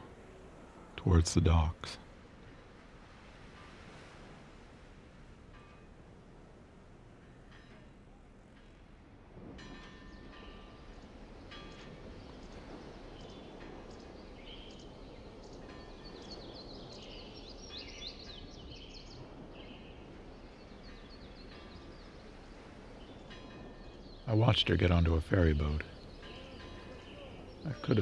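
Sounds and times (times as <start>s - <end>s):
low background noise: 0.0s - 28.0s
small birds chirping: 10.1s - 28.0s.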